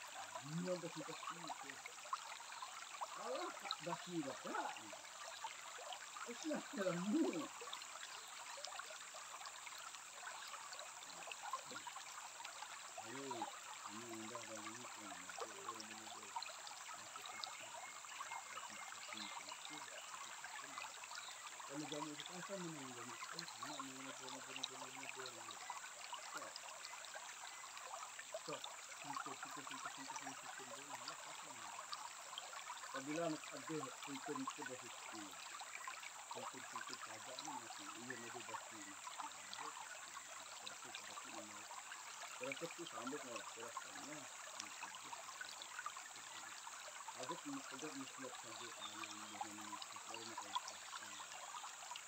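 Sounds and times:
stream running over rocks: 0.0 - 52.0
faint voices: 0.3 - 1.9, 3.0 - 5.1, 6.2 - 7.6, 13.0 - 20.9, 21.5 - 26.7, 27.8 - 31.9, 32.8 - 35.5, 36.3 - 41.8, 42.4 - 44.4, 47.1 - 51.3.

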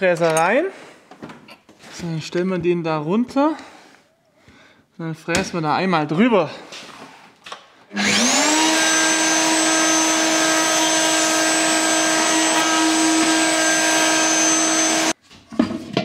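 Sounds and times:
electric router whining: 7.9 - 15.2.

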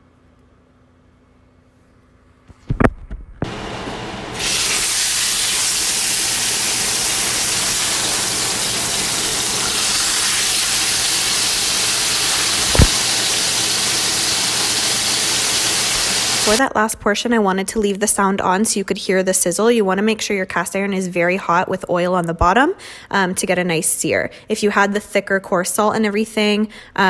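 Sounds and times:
steaks sizzling in a skillet: 4.4 - 16.6.

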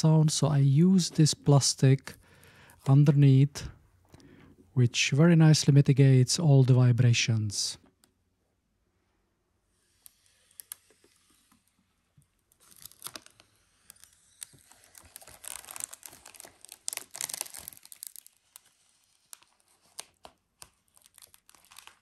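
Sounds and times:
plastic film crinkling: 12.5 - 22.0.

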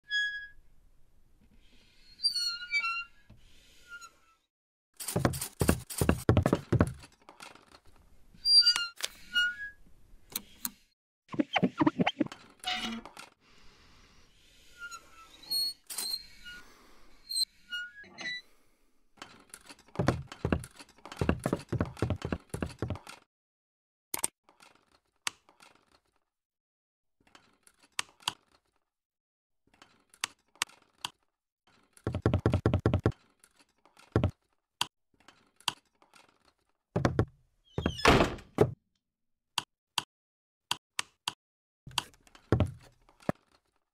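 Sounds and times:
small mechanical clicks and squeaks: 1.8 - 5.2, 7.0 - 13.4, 14.7 - 16.6, 19.2 - 21.2, 24.2 - 26.2, 27.2 - 28.8, 29.7 - 32.1, 33.1 - 34.6, 35.2 - 36.8
door sound: 20.0 - 23.1, 37.0 - 38.8, 42.3 - 42.9.

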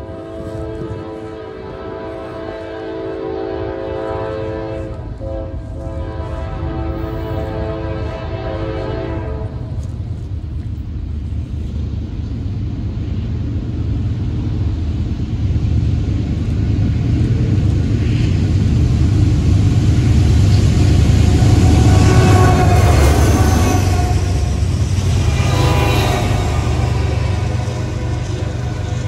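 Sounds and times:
diesel locomotive rumble: 0.0 - 29.0.

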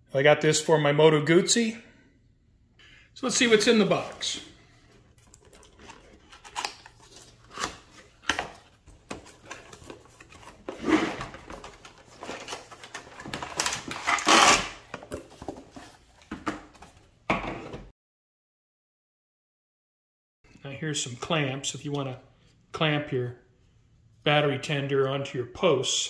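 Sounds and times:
packaging rustling and scraping: 5.1 - 16.3.

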